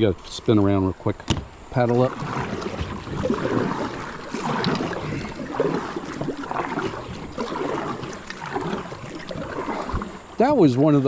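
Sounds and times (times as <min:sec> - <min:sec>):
paddle splashing in water: 0:01.8 - 0:10.6.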